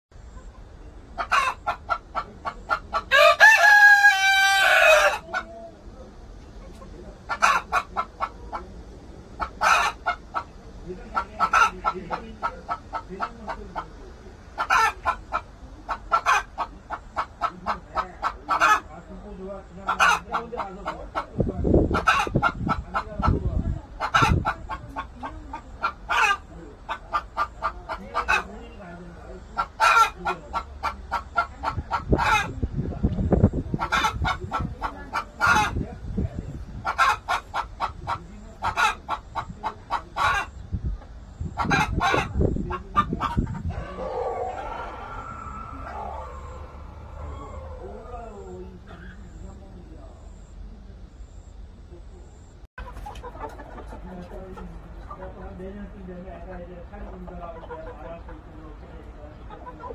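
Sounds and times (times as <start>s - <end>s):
chickens clucking: 0.2s - 59.9s
loud chicken calls: 0.3s - 5.8s, 6.7s - 32.6s, 33.4s - 35.8s, 36.7s - 50.5s
rooster crowing: 3.1s - 5.3s, 43.8s - 48.2s.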